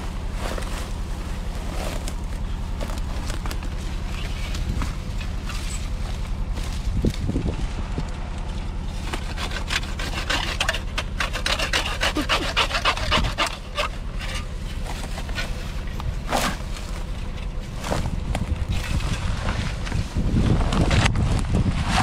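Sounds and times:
steady low hum: 0.0 - 22.0
hand tool rasping against wood: 9.0 - 17.0.

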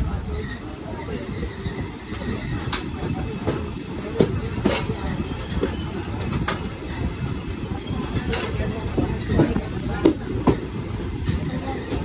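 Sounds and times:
train rumble: 0.0 - 12.0
train wheels clacking: 1.5 - 6.8.

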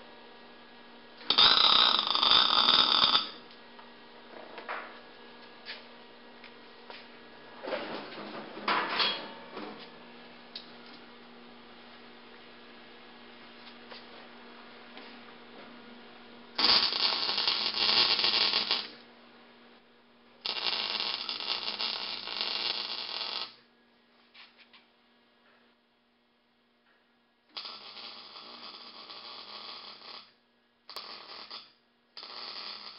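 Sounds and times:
welding arc crackling: 1.2 - 3.4, 16.6 - 19.0, 20.4 - 23.6, 27.5 - 32.9
welder humming: 1.2 - 3.9, 16.4 - 19.1, 20.4 - 23.6, 27.5 - 32.9.

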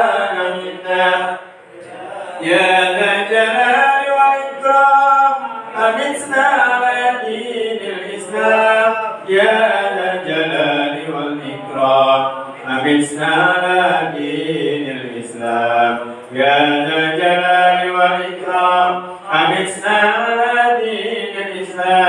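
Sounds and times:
unaccompanied melodic chanting: 0.0 - 22.0.

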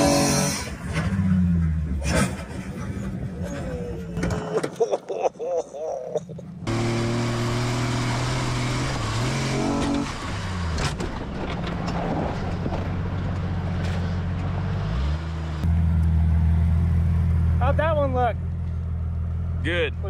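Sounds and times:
car engine revving: 0.0 - 3.4, 6.5 - 11.4, 12.2 - 18.0.

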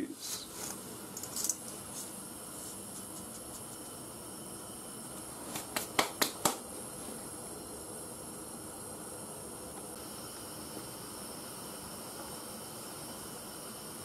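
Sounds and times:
boiling water hissing: 0.0 - 14.0.

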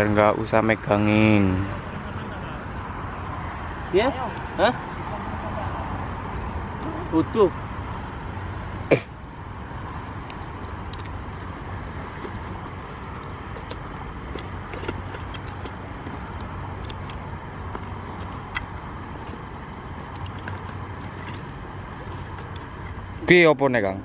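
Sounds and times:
road traffic hum: 0.0 - 24.0
fishing tackle clicking and rattling: 10.2 - 23.2.

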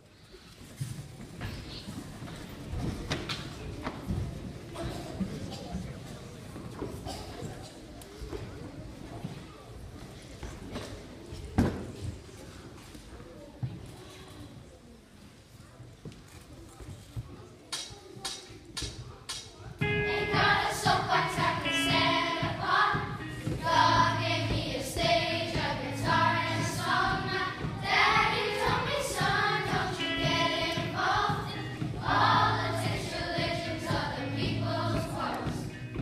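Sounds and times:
children's choir singing: 19.8 - 36.0
musical accompaniment: 19.8 - 36.0.

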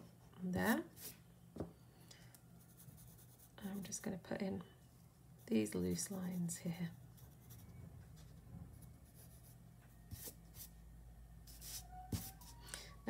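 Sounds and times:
pencil scratching on paper: 2.7 - 4.0, 5.4 - 7.6, 8.2 - 10.7, 11.5 - 12.6.

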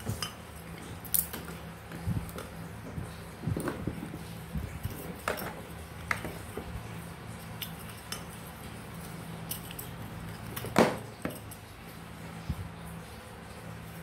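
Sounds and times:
metal motor parts clicking: 0.1 - 1.6, 9.4 - 11.6.

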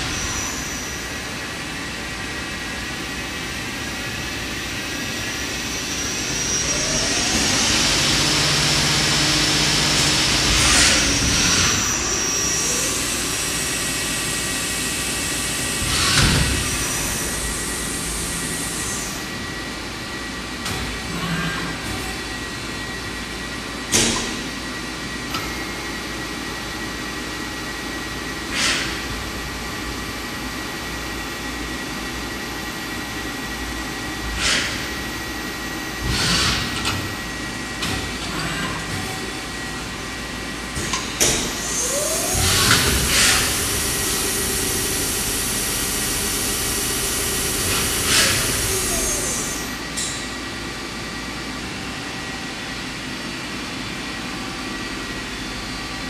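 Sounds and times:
lathe machine hum: 0.0 - 20.4, 39.2 - 53.3.

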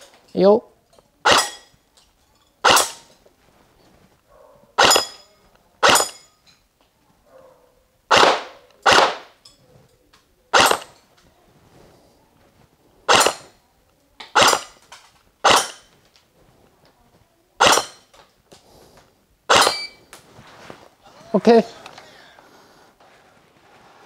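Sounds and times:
airsoft gun shots: 1.2 - 1.6, 2.6 - 3.0, 4.8 - 5.2, 5.8 - 6.2, 8.1 - 9.4, 10.5 - 11.0, 13.1 - 13.5, 14.3 - 14.8, 15.4 - 15.9, 17.6 - 18.0, 19.5 - 19.9
metallic ring: 4.8 - 6.5, 19.5 - 20.0.

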